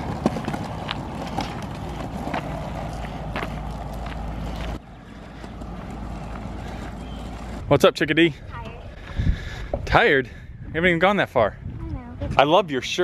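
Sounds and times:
skateboard clicks: 0.0s - 4.8s
skateboard wheels rolling on asphalt: 0.0s - 7.8s.

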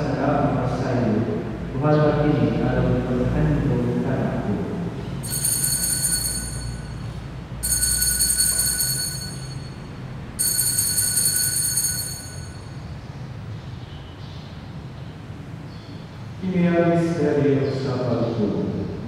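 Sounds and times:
altar bell ringing: 5.2s - 12.9s.

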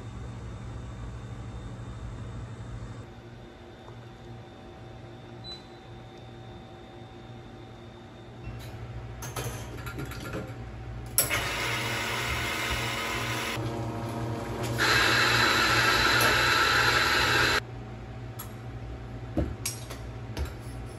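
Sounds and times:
espresso machine rushing: 11.2s - 17.6s.

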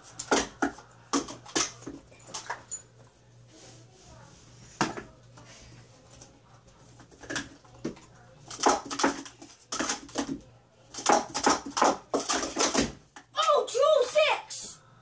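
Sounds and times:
plastic cups clattering: 0.0s - 2.8s, 7.0s - 13.3s.

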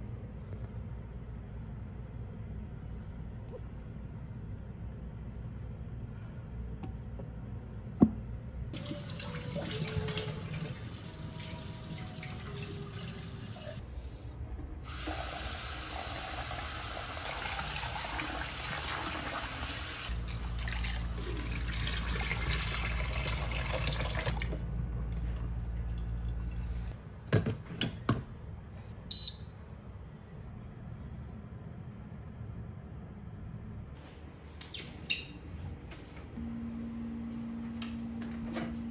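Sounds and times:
short electronic beep: 29.1s - 29.6s.

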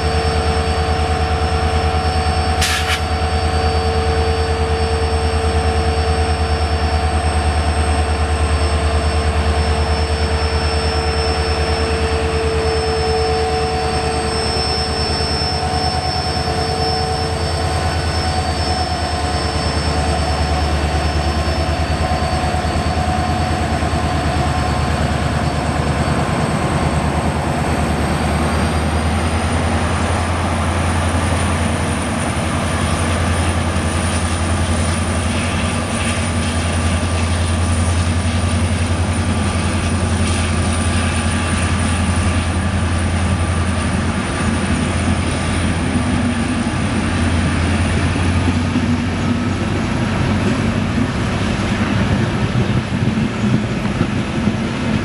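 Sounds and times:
thin high whine: 0.0s - 48.7s
diesel locomotive engine rumbling: 0.0s - 55.0s
train wheels rolling on track: 0.0s - 55.0s.

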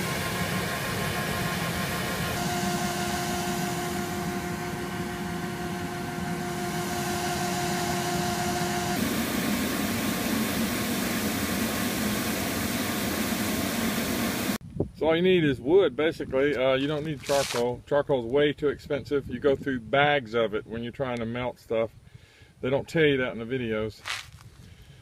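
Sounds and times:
two-note hum: 0.0s - 13.5s
furnace roaring: 0.0s - 14.6s.

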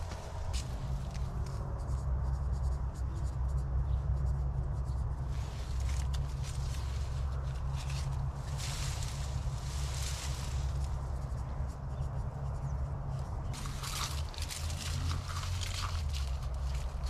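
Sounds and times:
steady low rumble: 0.0s - 17.0s
marker scratching on plastic tape: 1.1s - 8.4s.

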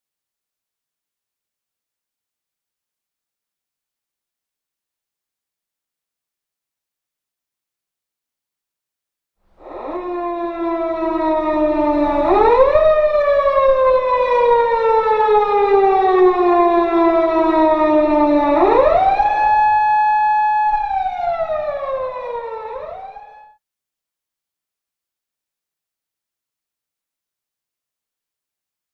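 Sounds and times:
police siren wailing: 9.6s - 23.6s.

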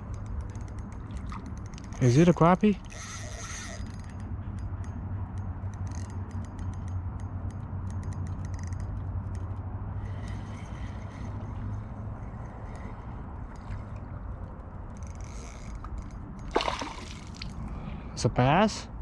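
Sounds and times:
fishing reel clicking: 0.1s - 13.7s, 14.9s - 16.5s
steady low rumble: 4.1s - 19.0s.

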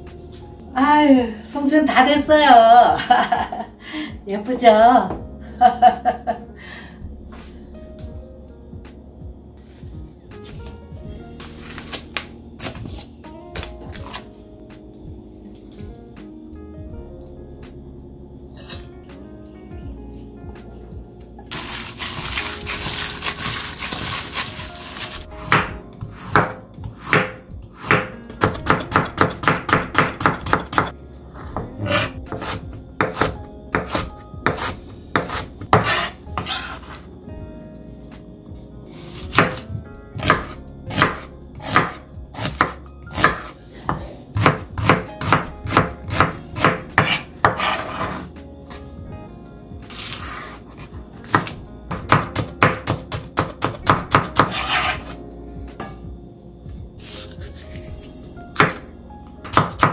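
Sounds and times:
knife chopping on cutting board: 25.4s - 30.9s, 31.6s - 37.0s, 39.1s - 39.6s, 40.2s - 48.2s, 51.2s - 55.2s, 58.6s - 58.8s.

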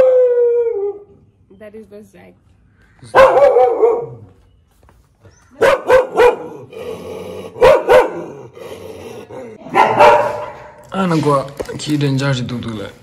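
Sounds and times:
dog barking: 3.1s - 4.3s, 5.6s - 6.7s, 7.6s - 8.4s, 9.6s - 10.8s.

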